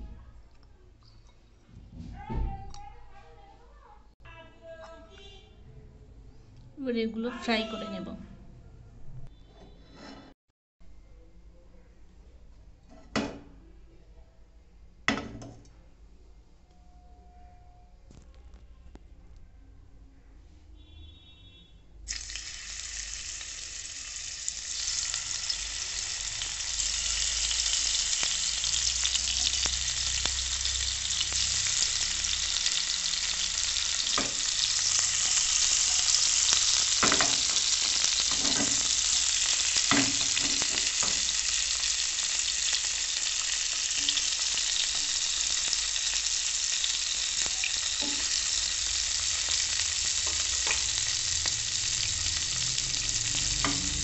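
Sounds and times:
fish sizzling in hot oil: 22.1s - 54.0s.

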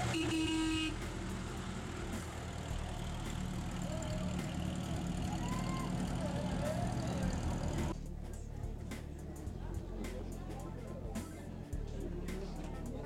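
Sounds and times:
engine running at low revs: 0.0s - 8.0s
faint voices: 3.6s - 13.0s.

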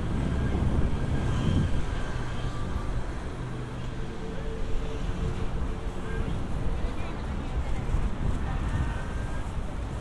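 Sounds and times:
low rumble of passing traffic: 0.0s - 10.0s.

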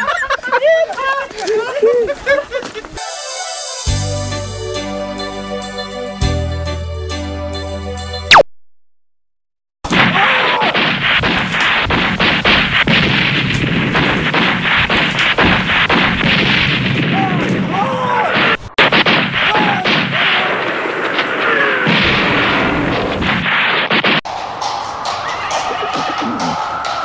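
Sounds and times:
dense gunfire: 9.9s - 24.2s.

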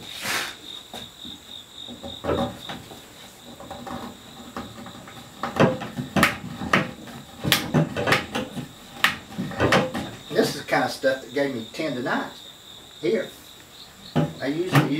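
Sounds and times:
wood knocking and clicking on wood: 0.9s - 10.4s, 14.1s - 14.9s.

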